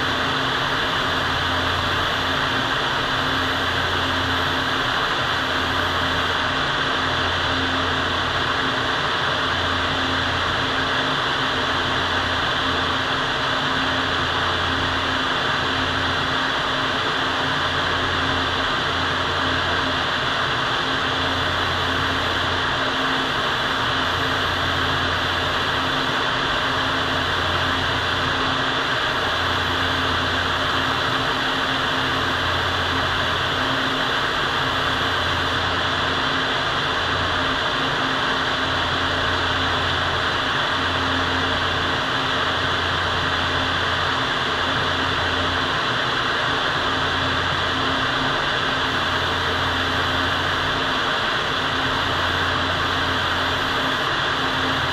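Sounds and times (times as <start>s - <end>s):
ventilation fans running: 0.0s - 54.9s.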